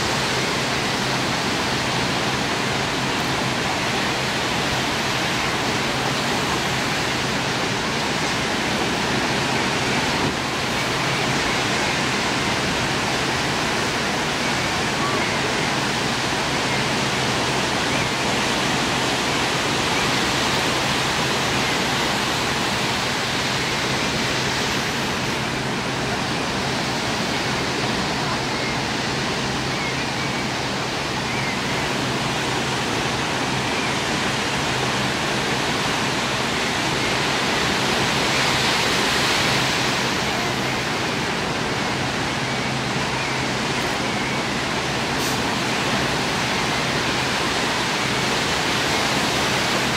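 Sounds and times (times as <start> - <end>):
steady rushing outdoor noise: 0.0 - 49.9.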